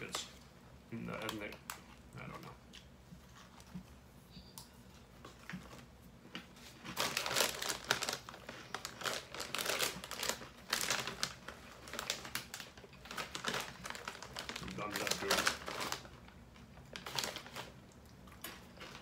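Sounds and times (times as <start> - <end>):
plastic bag crinkling: 6.5 - 19.0.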